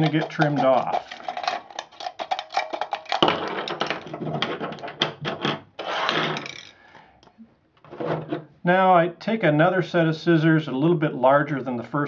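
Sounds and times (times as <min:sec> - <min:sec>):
metal crinkling rustle: 0:00.0 - 0:04.9.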